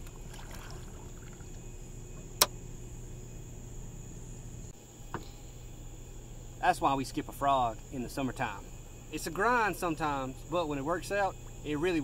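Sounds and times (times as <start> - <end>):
small water splash: 0.0 - 1.6.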